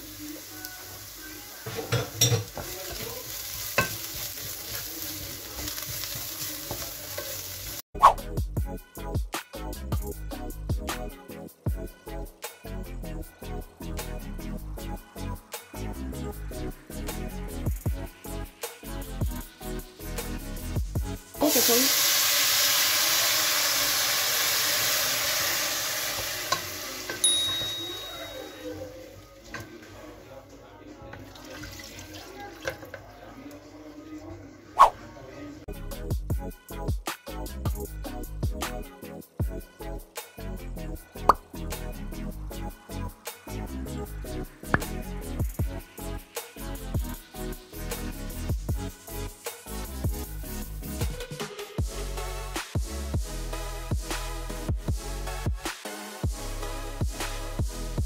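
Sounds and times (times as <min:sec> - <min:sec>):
vegetables sizzling in a pot: 0:00.0 - 0:07.8, 0:18.6 - 0:30.2
water pouring into pot: 0:21.4 - 0:28.8, 0:31.2 - 0:33.5.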